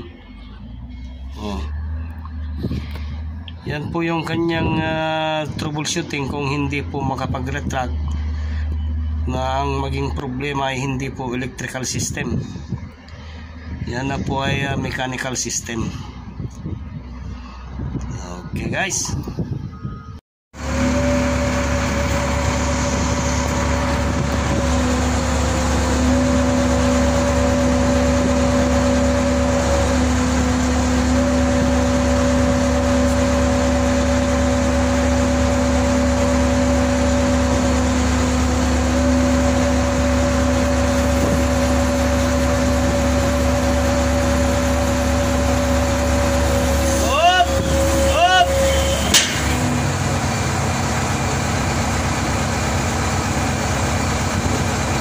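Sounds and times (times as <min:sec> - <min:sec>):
crane engine running: 0:00.0 - 0:18.1, 0:19.3 - 0:55.0
steady whine: 0:20.6 - 0:50.2.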